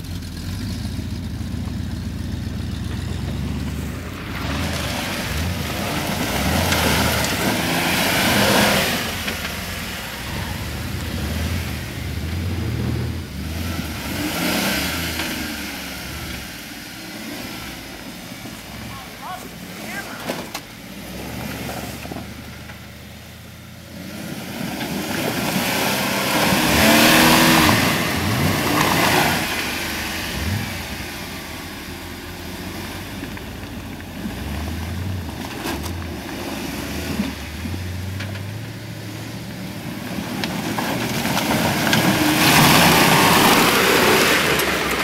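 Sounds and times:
engine revving in surges: 0.0s - 22.9s, 23.8s - 45.0s
tires churning through mud: 0.0s - 45.0s.

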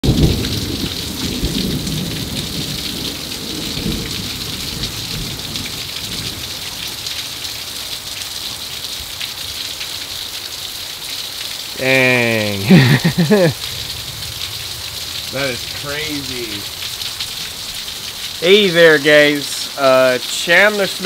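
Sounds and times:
low rumble of thunder: 0.0s - 6.6s, 13.5s - 18.4s
heavy rain pouring: 0.0s - 21.0s.

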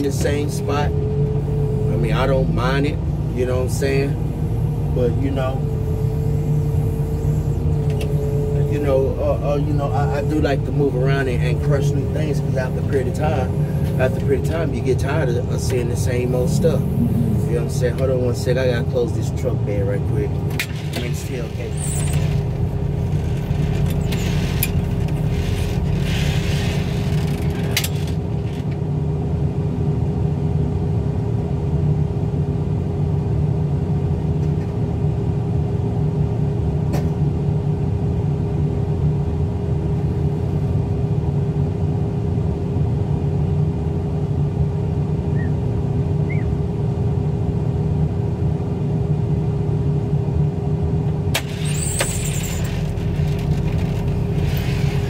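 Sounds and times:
loader engine idling: 0.0s - 27.7s.

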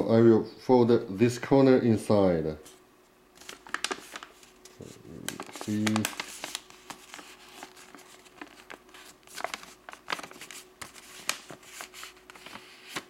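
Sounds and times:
paper crinkling: 3.4s - 13.0s.

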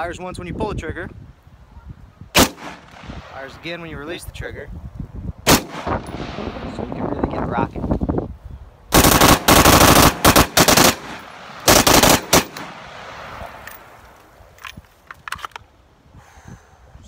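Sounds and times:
rifle firing rapid shots: 2.4s - 3.0s, 5.5s - 6.0s, 8.9s - 13.2s.

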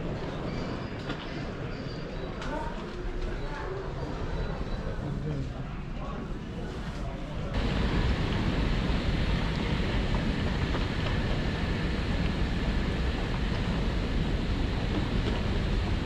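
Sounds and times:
rushing noise with low rumble: 7.5s - 16.0s.

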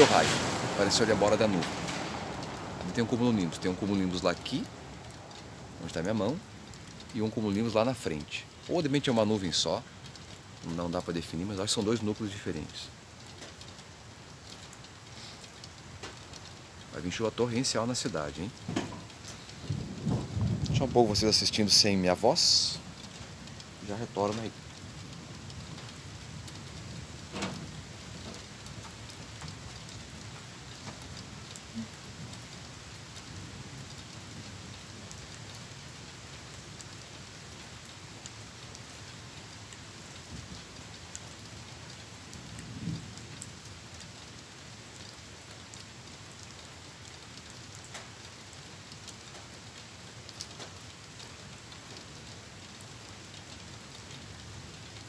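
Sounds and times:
rain falling: 0.0s - 55.0s.

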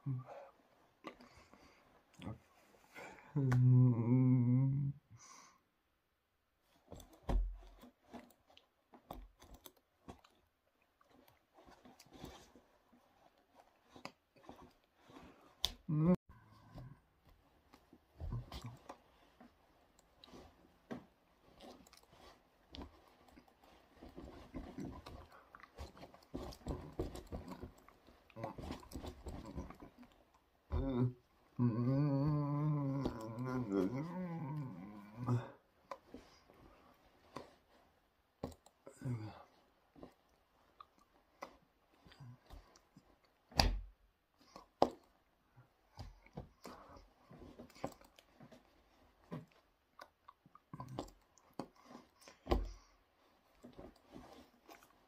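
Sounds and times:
lip smacks and mouth clicks: 49.9s - 51.7s.

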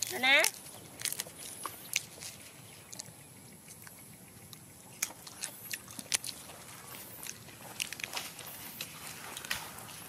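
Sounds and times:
faint sharp ticks and clicks: 0.0s - 6.4s.

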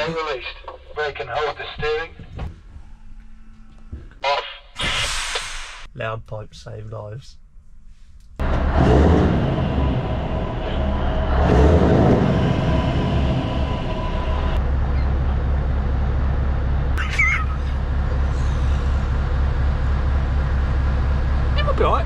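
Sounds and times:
diesel engine idling: 8.4s - 22.0s.

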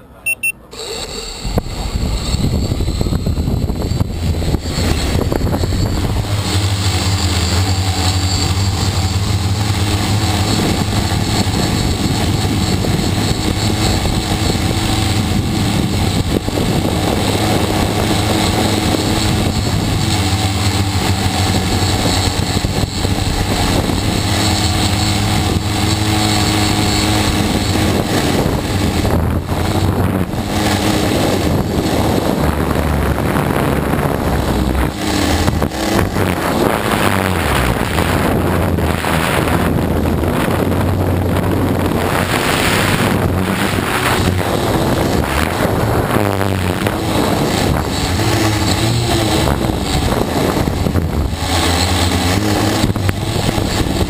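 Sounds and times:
drone propellers buzzing: 0.0s - 54.0s.

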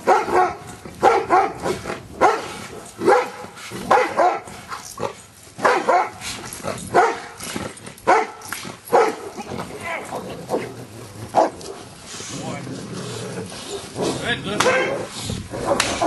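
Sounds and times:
dog barking: 0.0s - 4.5s, 5.6s - 6.2s, 6.9s - 7.4s, 8.1s - 9.4s, 11.3s - 11.8s, 14.6s - 16.0s.

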